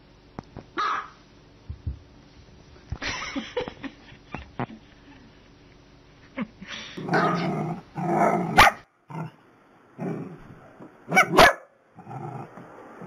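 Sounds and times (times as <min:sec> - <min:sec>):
small dogs barking: 0:00.8 - 0:01.2, 0:07.1 - 0:09.3, 0:11.1 - 0:11.8.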